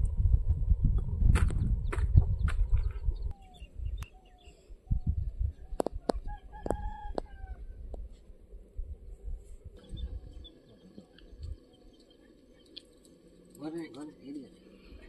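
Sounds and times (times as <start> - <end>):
low rumble: 0.0 - 4.2
rooster crowing: 6.1 - 8.0.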